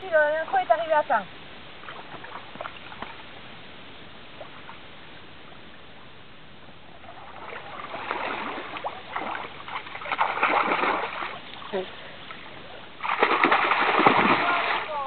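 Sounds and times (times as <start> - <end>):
pool water sloshing: 1.7 - 3.6, 6.9 - 15.0
swimmer splashing: 7.1 - 15.0.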